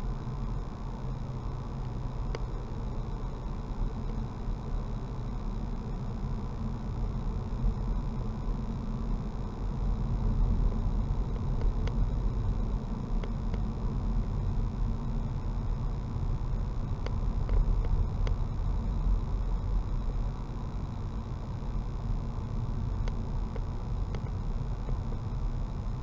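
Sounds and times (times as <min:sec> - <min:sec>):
faint high whine: 0:00.0 - 0:26.0.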